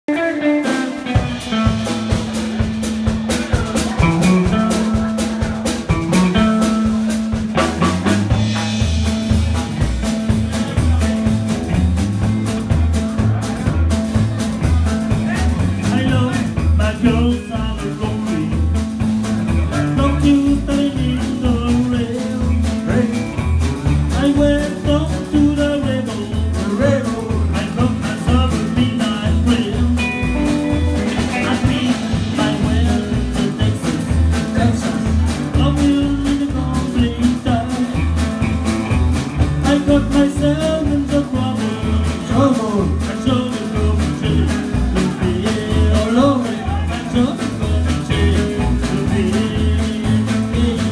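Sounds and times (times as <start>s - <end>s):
rock and roll band playing: 0.0s - 50.9s
person singing: 15.2s - 18.9s, 19.5s - 38.4s, 39.4s - 50.9s.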